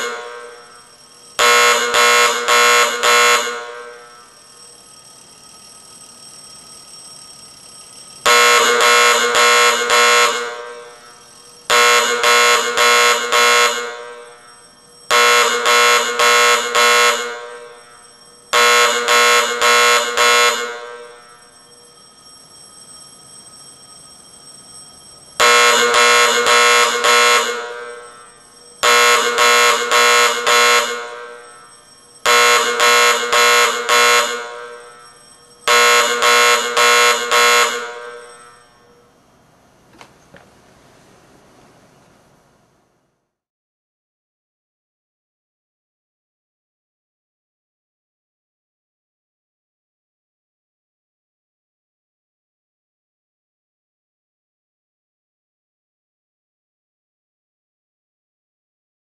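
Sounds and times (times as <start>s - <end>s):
fire alarm gong ringing: 0.0s - 39.2s.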